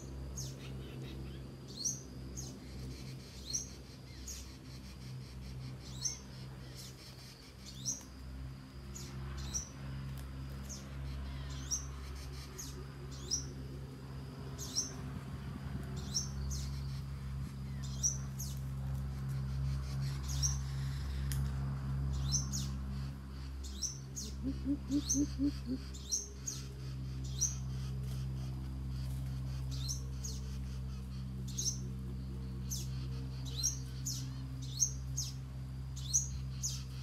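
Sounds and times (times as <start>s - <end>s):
steady low hum: 0.0s - 37.0s
small bird chirping: 0.3s - 8.1s, 10.6s - 13.6s, 14.6s - 15.0s, 15.9s - 21.3s, 22.1s - 37.0s.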